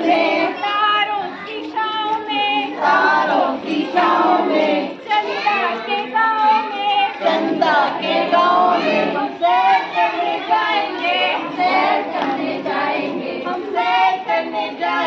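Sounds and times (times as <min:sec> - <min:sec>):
high voices singing together: 0:00.0 - 0:15.0.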